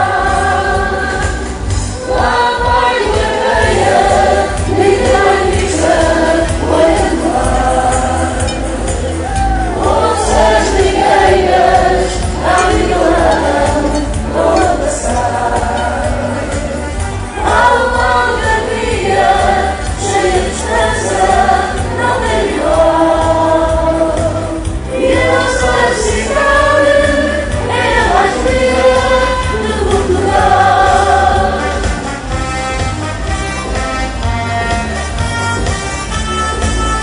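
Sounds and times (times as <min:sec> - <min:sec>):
group singing in chorus: 0:00.0 - 0:32.5
band with pulsing bass beat: 0:00.0 - 0:37.0.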